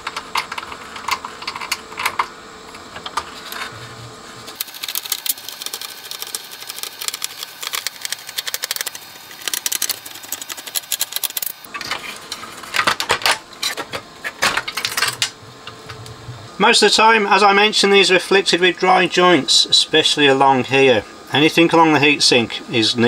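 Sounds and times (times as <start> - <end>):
circuit boards clattering: 4.6 - 15.4.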